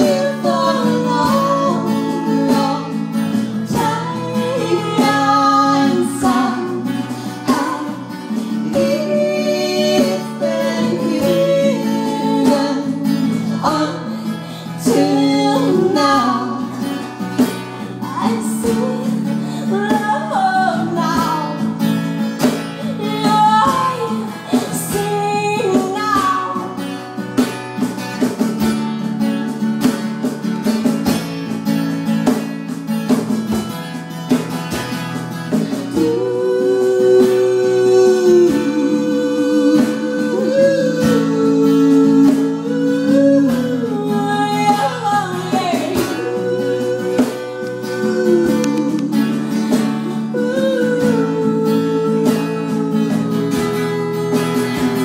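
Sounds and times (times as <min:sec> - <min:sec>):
women singing: 0:00.0 - 0:27.1, 0:35.6 - 0:55.0
acoustic guitar strummed and picked: 0:00.0 - 0:55.0.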